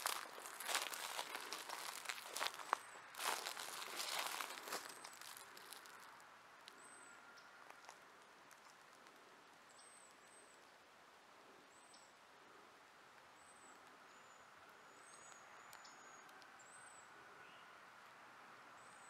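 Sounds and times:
footsteps crunching through dry leaves: 0:00.0 - 0:06.2.

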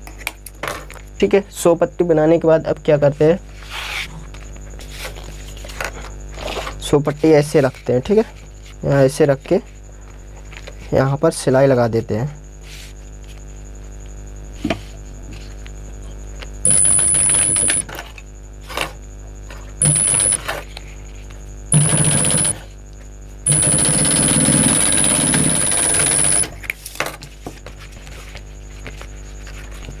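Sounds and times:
industrial sewing machine stitching: 0:19.8 - 0:20.4, 0:21.7 - 0:22.6, 0:23.5 - 0:26.5.

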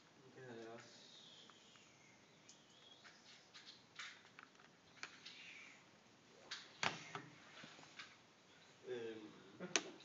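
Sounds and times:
faint room hiss: 0:00.0 - 0:10.0
soft clicks: 0:00.6 - 0:05.5.

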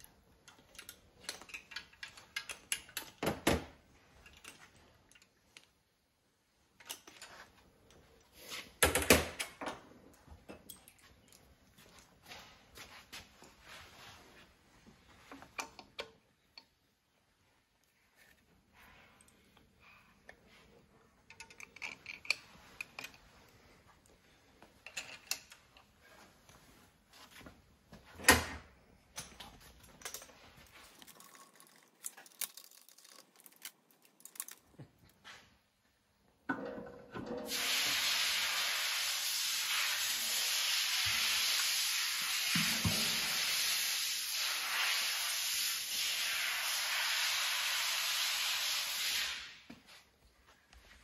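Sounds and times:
parts clicking and rustling: 0:00.0 - 0:06.0, 0:06.6 - 0:13.6, 0:17.8 - 0:35.6
pressurized gas hissing: 0:37.5 - 0:49.6.

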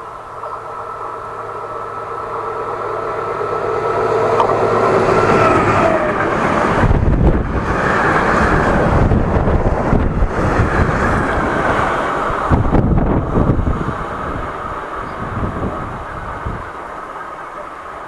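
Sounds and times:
diesel locomotive passing: 0:00.0 - 0:18.0.

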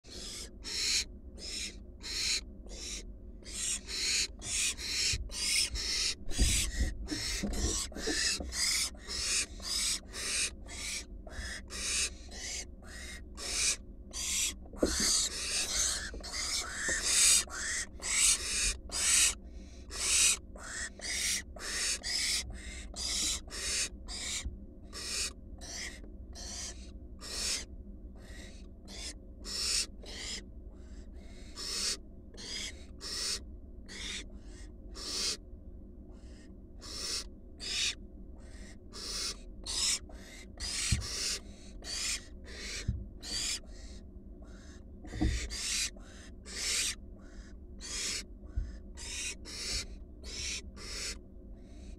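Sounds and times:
owl chicks hissing calls: 0:00.1 - 0:35.4, 0:36.1 - 0:51.9
low thuds in wooden nest box: 0:14.7 - 0:17.0.

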